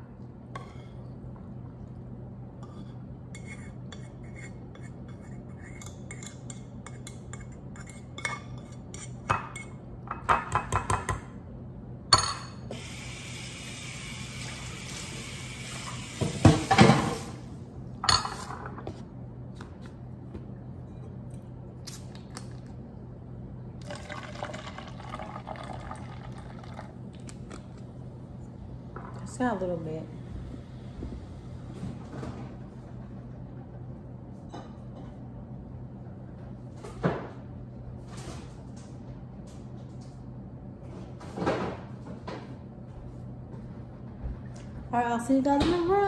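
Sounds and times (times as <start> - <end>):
drink pouring into a cup: 23.8 - 27.4.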